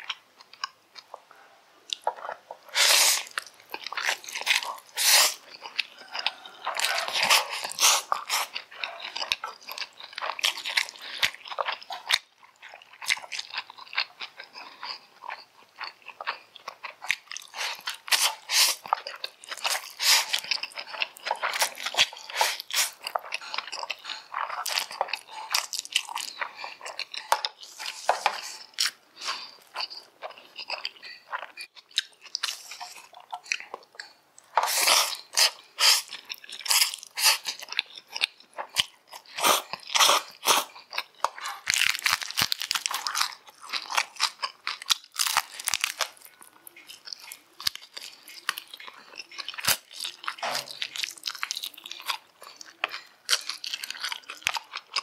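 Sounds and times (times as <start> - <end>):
slurping noodles: 2.6 - 3.5, 4.8 - 5.5, 6.7 - 8.6, 17.5 - 18.9, 19.6 - 20.5, 21.5 - 24.3, 34.6 - 37.6, 39.2 - 40.8.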